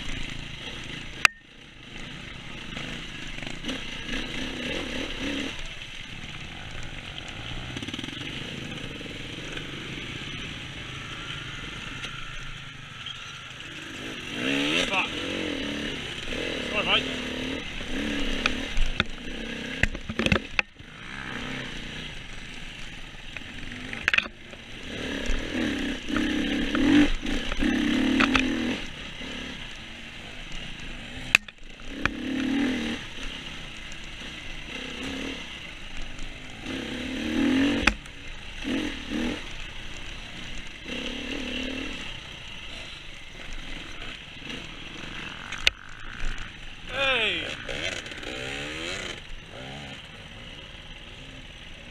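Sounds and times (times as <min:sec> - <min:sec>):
dirt bike engine revving: 0:00.0 - 0:51.9
bike clattering over bumps: 0:19.8 - 0:20.8.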